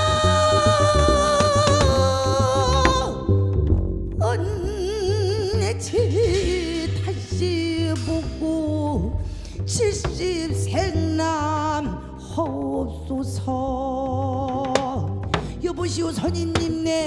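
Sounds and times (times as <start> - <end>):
woman singing with vibrato: 0.0 - 3.6, 4.2 - 17.0
band with double bass and drums: 0.0 - 17.0.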